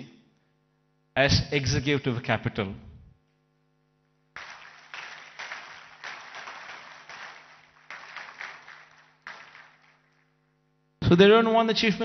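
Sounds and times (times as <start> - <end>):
audience applauding: 4.4 - 10.3.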